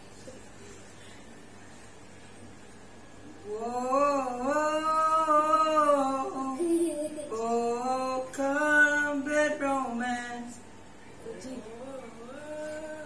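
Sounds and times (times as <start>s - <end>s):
person singing unaccompanied: 3.4s - 10.6s, 11.2s - 13.0s.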